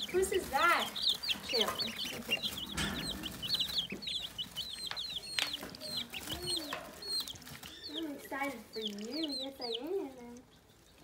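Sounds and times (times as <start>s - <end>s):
chicks and ducklings peeping: 0.0s - 11.0s.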